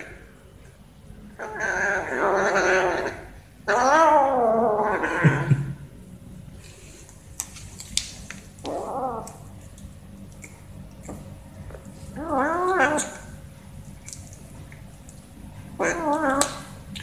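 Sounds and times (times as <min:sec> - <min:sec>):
faint eating clicks: 0:07.4 - 0:12.0, 0:13.8 - 0:15.3.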